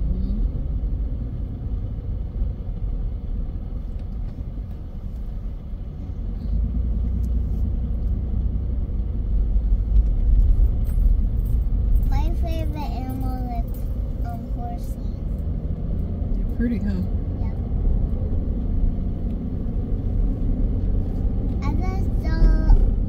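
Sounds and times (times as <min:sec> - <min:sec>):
car engine and tyres rumbling: 0:00.0 - 0:23.0.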